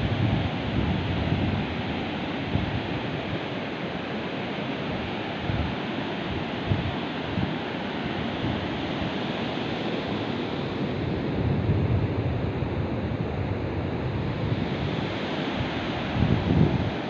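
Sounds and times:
wind buffeting microphone: 0.0 - 3.4, 4.9 - 17.0
surf breaking on a beach: 0.0 - 17.0.

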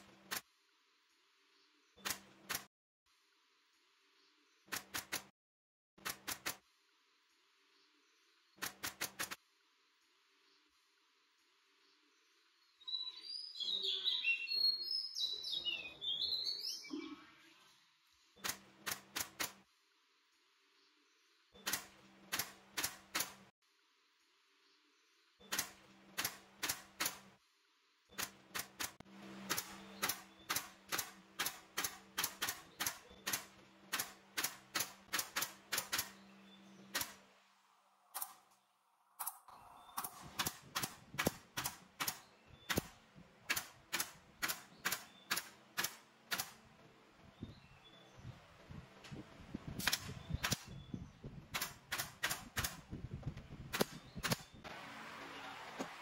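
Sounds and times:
nail gun firing into wood: 25.5 - 27.3, 28.2 - 36.1, 40.0 - 46.6, 49.8 - 50.8, 51.5 - 52.9, 53.7 - 54.4.

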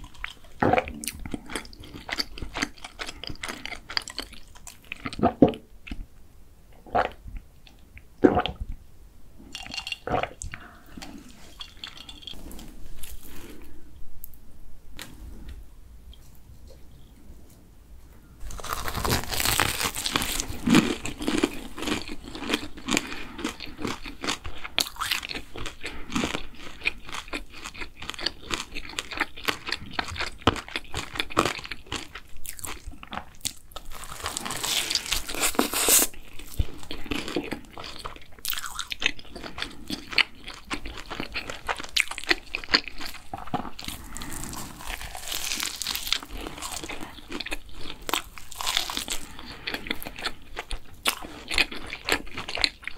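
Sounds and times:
crunching fried food: 0.0 - 5.3, 18.4 - 52.9
chewing: 18.4 - 52.9.

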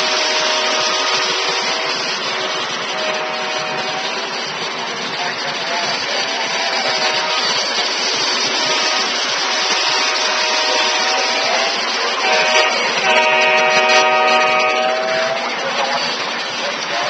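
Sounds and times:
diesel horn blasts: 0.0 - 4.2, 6.8 - 7.6, 8.5 - 15.5
model train rolling on track: 0.0 - 17.0.

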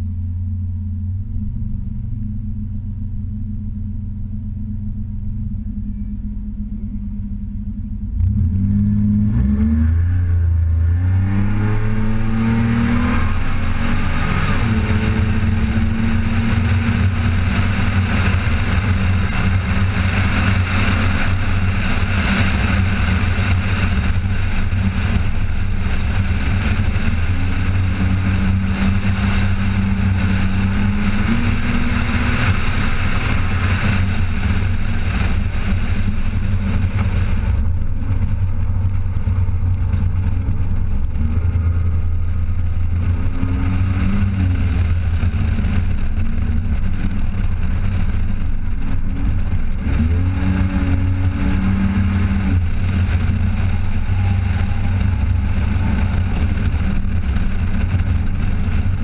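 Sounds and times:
wind and road noise: 0.0 - 59.0
car engine revving hard: 8.2 - 37.6, 49.8 - 59.0.

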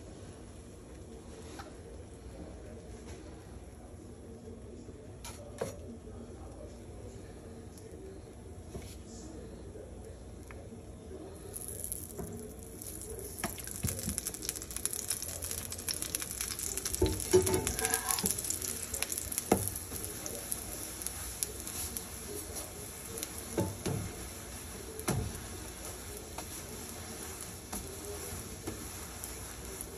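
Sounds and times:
flatbread sizzling in oil: 11.5 - 29.9.

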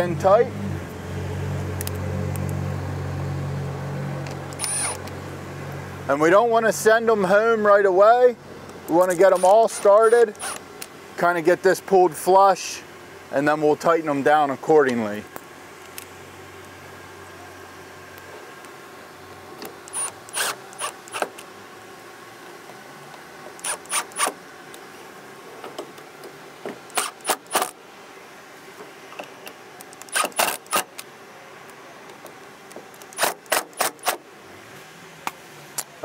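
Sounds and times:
impact driver bursts: 4.5 - 5.0, 9.2 - 10.6, 19.9 - 21.4, 23.6 - 24.4, 26.9 - 27.8, 30.0 - 31.0, 33.1 - 34.2.

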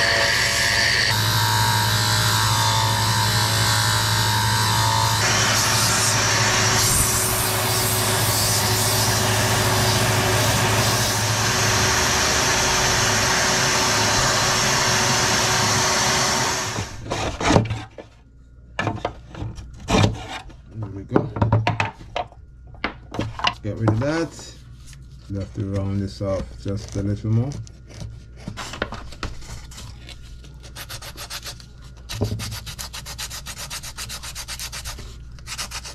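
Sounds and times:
wood lathe humming: 0.0 - 17.0
sanding wood by hand: 32.2 - 35.9.

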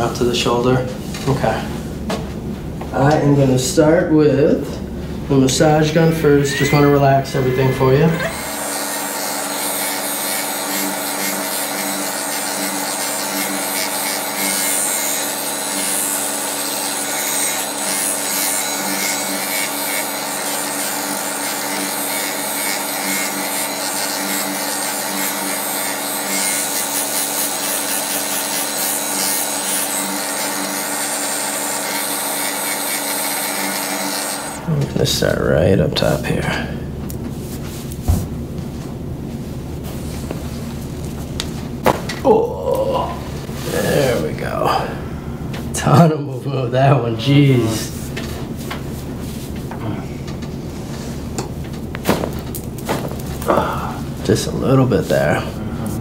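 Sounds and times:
massage gun motor humming: 5.7 - 12.0.

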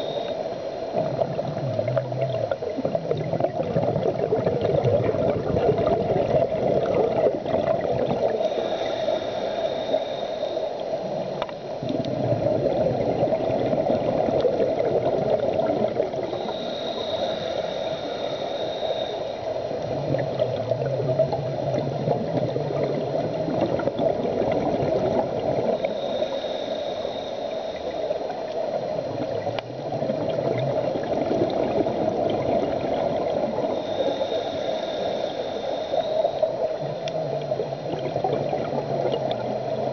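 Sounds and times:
regulator hiss on inhale: 0.0 - 3.2, 8.1 - 12.0, 16.1 - 23.3, 25.4 - 30.1, 31.6 - 38.0
exhaled bubbles rumbling: 0.0 - 9.3, 10.8 - 26.4, 27.1 - 34.9, 36.0 - 39.9
steady underwater rush: 0.0 - 39.9.

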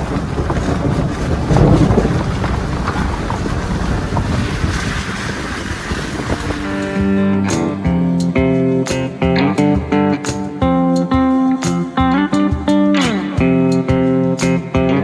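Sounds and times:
tyres splashing through mud: 0.0 - 8.0
gravel clicks: 0.0 - 9.4
wind buffeting microphone: 0.0 - 15.0.

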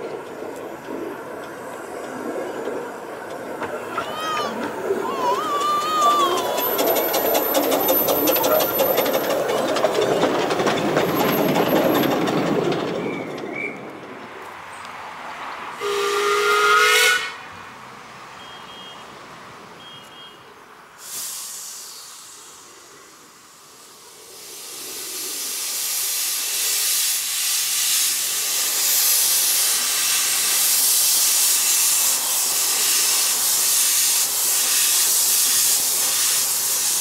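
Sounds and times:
steam locomotive clattering past: 0.0 - 17.4, 21.0 - 37.0
steam hissing: 3.4 - 13.7, 21.0 - 37.0
steam whistle blast: 15.8 - 17.5.

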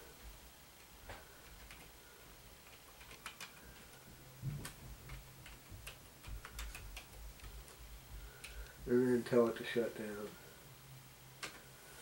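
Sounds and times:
keyboard keys clicking: 1.4 - 1.9, 2.6 - 4.0, 4.6 - 7.6.

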